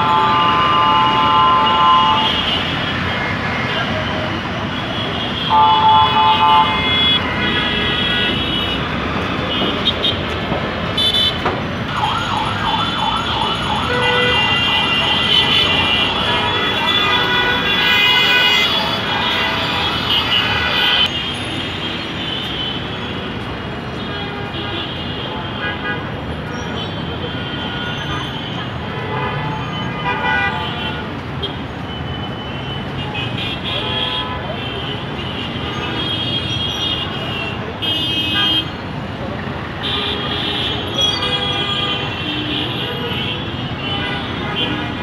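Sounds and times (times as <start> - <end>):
vehicle horns: 0.0 - 11.5, 13.3 - 45.0
city traffic: 0.0 - 45.0
siren wailing: 11.9 - 13.9.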